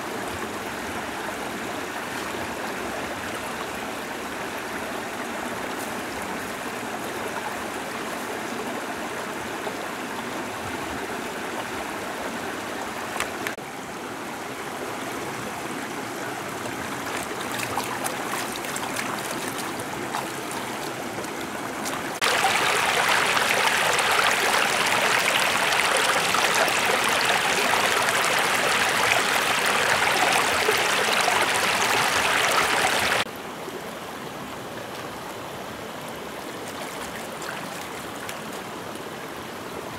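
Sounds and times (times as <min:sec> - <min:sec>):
stream rushing over stones: 0:00.0 - 0:33.8, 0:34.5 - 0:39.9.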